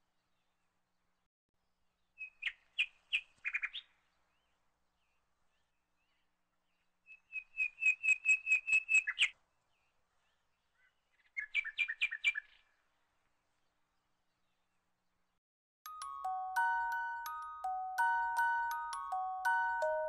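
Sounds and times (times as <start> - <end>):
bird singing whistled notes: 7.1 - 9.4.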